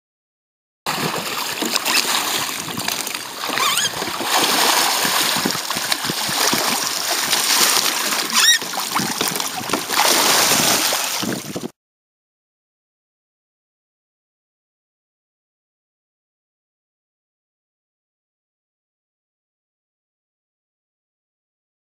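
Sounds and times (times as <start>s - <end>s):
water splashing and rushing: 0.9s - 11.7s.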